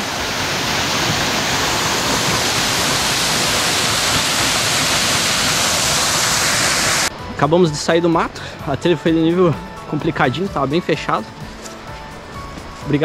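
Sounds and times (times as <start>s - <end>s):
waterfall rushing: 0.0s - 7.3s.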